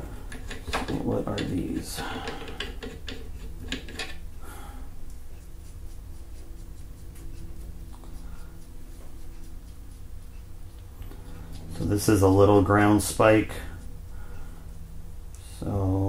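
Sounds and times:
metal parts rubbing: 0:00.0 - 0:04.3
steady low hum: 0:00.0 - 0:16.0
small metal parts clicking: 0:00.2 - 0:04.2.

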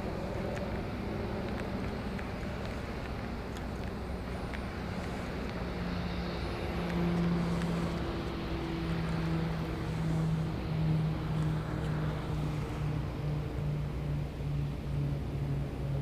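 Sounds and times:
outdoor noise: 0:00.0 - 0:16.0
steady engine drone: 0:00.0 - 0:16.0.

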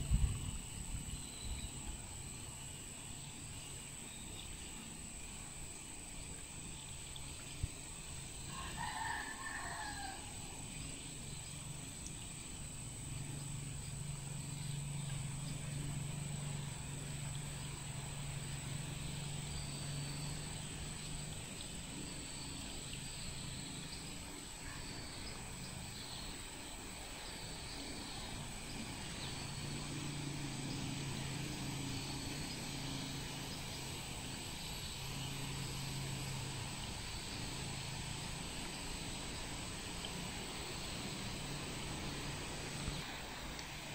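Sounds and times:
low steady hum: 0:00.0 - 0:43.9
thin high whine: 0:00.0 - 0:43.9
faint bird chirps: 0:00.5 - 0:05.0, 0:08.0 - 0:37.7
rooster crowing: 0:08.4 - 0:10.7.

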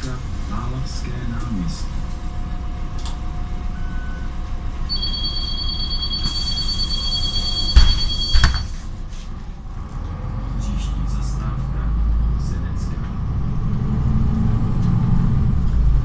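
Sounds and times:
bus engine rumble: 0:00.0 - 0:16.0
two-tone door warning signal: 0:04.9 - 0:08.8
bus doors shutting thumps: 0:07.6 - 0:08.8.

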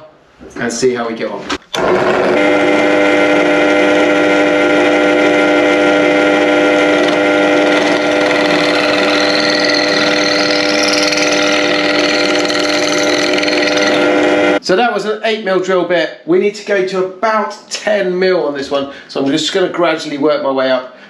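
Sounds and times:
pillar drill motor whine: 0:01.8 - 0:14.6.

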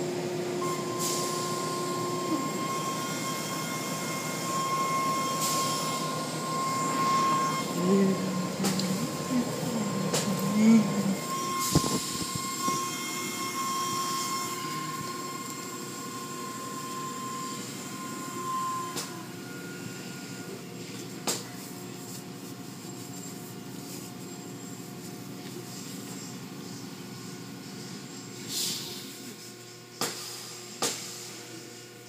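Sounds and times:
high machine whine: 0:00.0 - 0:28.5.

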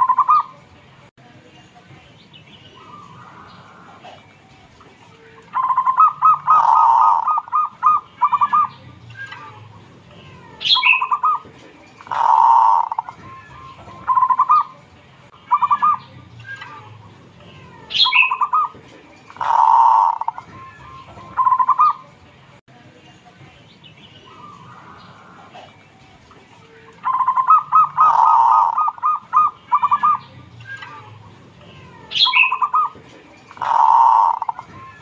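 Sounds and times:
dove cooing: 0:02.8 - 0:04.3, 0:05.5 - 0:08.7, 0:10.6 - 0:13.2, 0:17.9 - 0:20.5, 0:21.3 - 0:22.0, 0:27.0 - 0:30.3, 0:32.1 - 0:34.7.

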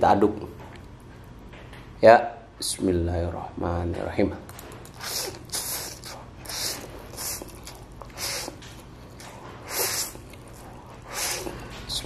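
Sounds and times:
chewing: 0:04.5 - 0:12.0
noodles slurped: 0:04.8 - 0:11.9.

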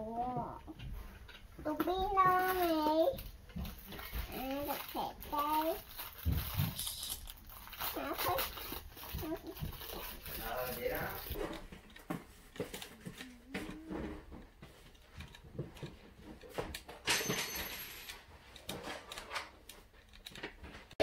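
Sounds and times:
plastic packaging rustle: 0:01.2 - 0:16.8.

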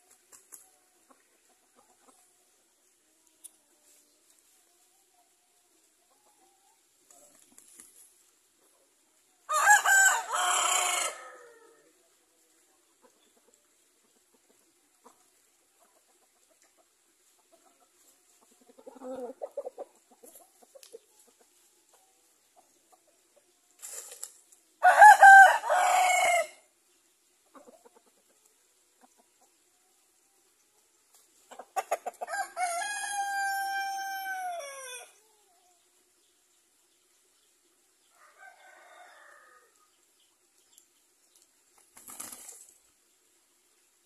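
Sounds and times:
rooster crowing: 0:09.5 - 0:11.8, 0:24.8 - 0:26.6, 0:32.3 - 0:35.2, 0:38.1 - 0:39.8
soft clucks: 0:12.7 - 0:23.6, 0:27.4 - 0:29.7, 0:31.4 - 0:32.2.

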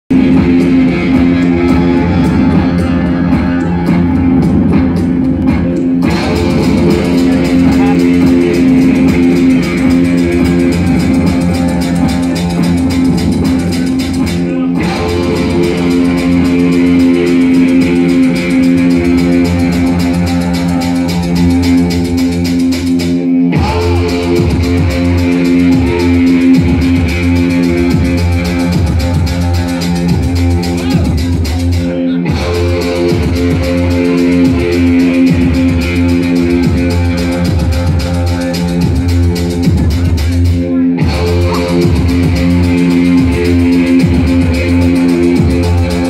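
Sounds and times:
live music over pa: 0:00.1 - 0:46.0.

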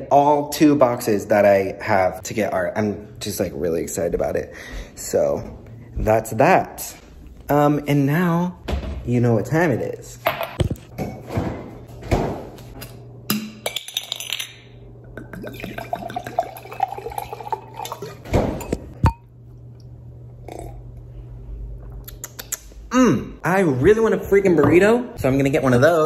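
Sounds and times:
wine pouring into a glass: 0:15.2 - 0:18.8.

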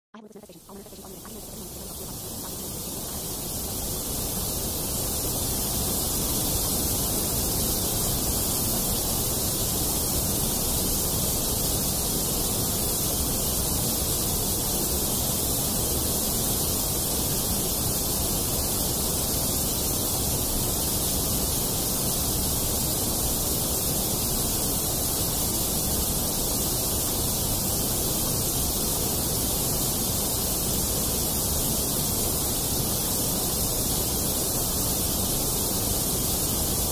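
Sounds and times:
steady noise hiss: 0:00.2 - 0:36.9.

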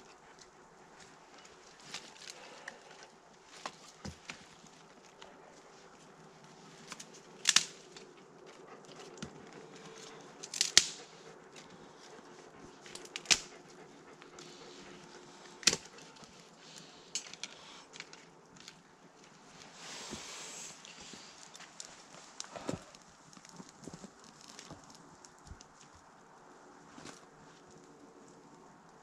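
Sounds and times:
faint steady hum: 0:00.0 - 0:29.0
dry twigs snapping: 0:06.8 - 0:12.2, 0:12.8 - 0:13.6, 0:15.6 - 0:19.3, 0:21.2 - 0:25.9.

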